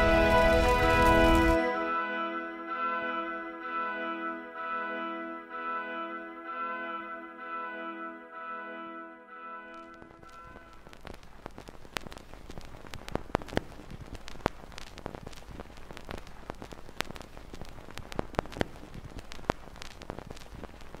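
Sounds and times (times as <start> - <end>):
record surface crackling: 0.0 - 2.0, 9.7 - 21.0
held brass chord: 0.0 - 10.9.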